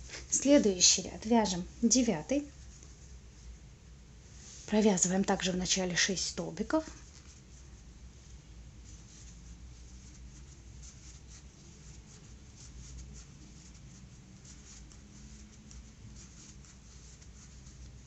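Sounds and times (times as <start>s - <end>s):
low steady hum: 0.0s - 18.0s
crochet hook scratching yarn: 6.8s - 18.0s.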